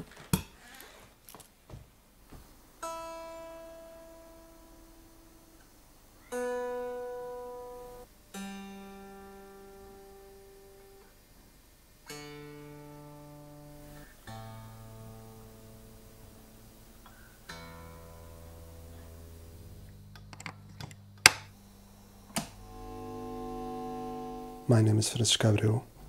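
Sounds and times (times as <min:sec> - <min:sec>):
electric guitar strings plucked: 0:12.1 - 0:20.6, 0:22.2 - 0:25.8.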